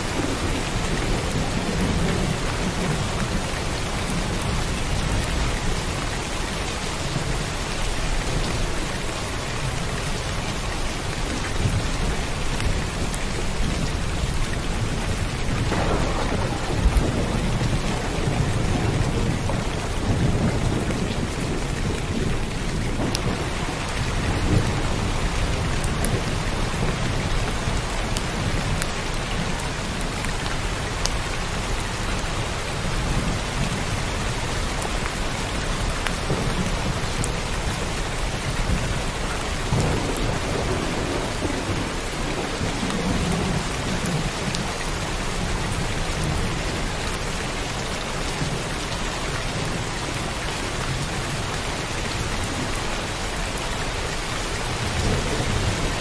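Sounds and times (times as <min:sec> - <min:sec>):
heavy rain: 0:00.0 - 0:56.0
rolling thunder: 0:13.4 - 0:29.5, 0:36.1 - 0:45.6.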